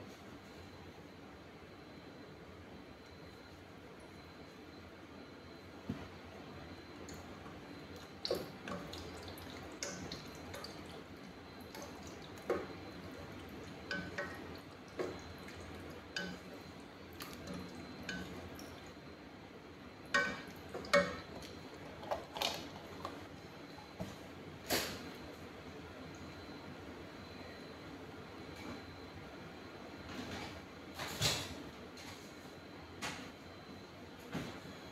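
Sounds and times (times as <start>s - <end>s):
liquid dripping: 6.3s - 19.0s, 20.0s - 23.2s
spoon knocking against pot: 13.9s - 15.2s, 16.2s - 16.5s, 20.1s - 21.4s.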